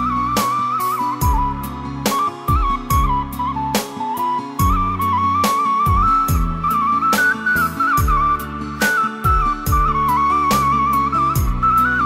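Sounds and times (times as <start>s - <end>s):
flute-like melody: 0.0s - 12.0s
drum beat with deep kicks: 1.2s - 3.4s, 4.6s - 5.1s, 5.9s - 6.7s, 8.0s - 8.4s, 9.2s - 10.1s, 11.4s - 11.8s.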